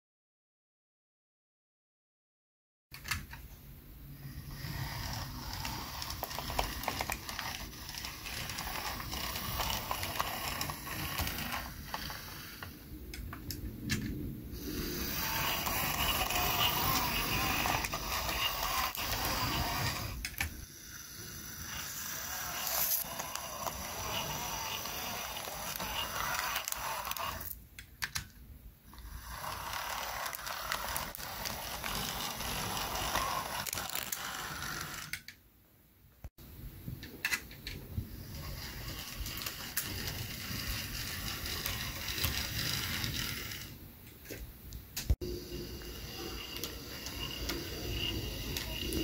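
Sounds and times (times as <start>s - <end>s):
model locomotive motor whirring: 4.2s - 12.8s, 14.6s - 27.6s, 28.9s - 35.2s, 38.0s - 43.8s, 45.2s - 49.0s.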